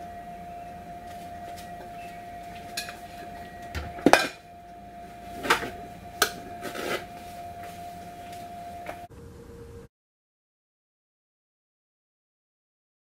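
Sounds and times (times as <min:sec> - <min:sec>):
steady high-pitched hum: 0:00.0 - 0:09.9
kitchen utensils and dishes clinking: 0:02.6 - 0:04.4.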